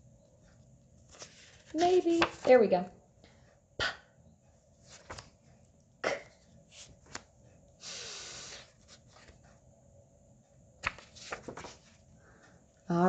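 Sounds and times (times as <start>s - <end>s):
flashcards clicking: 1.1s - 2.6s, 10.8s - 11.8s.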